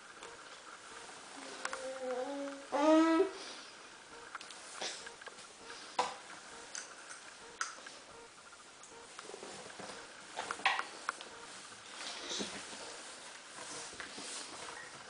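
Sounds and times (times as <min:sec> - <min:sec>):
toddler vocalizing: 0:01.7 - 0:03.4.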